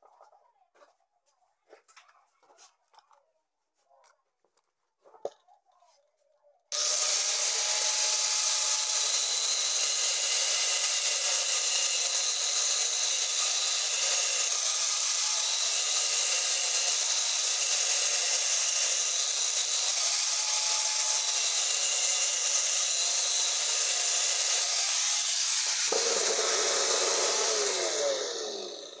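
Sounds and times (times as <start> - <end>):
angle grinder grinding steel: 6.7 - 29.0
grinder disc spinning down: 6.7 - 29.0.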